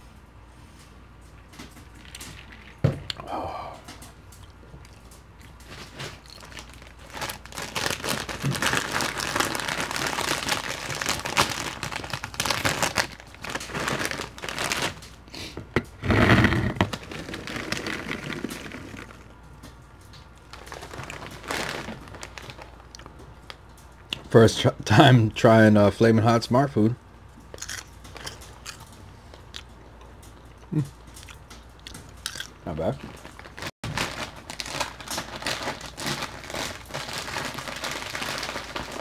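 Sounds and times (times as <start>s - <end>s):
plastic snack bag crinkling: 4.4s - 15.3s, 16.1s - 19.6s, 20.3s - 23.6s, 31.1s - 39.0s.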